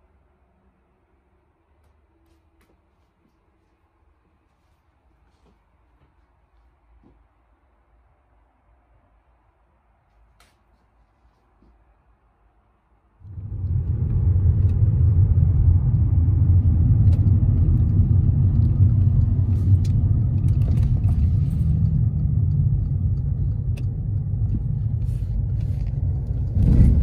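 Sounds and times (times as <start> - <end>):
car engine and road rumble: 13.2 - 27.0.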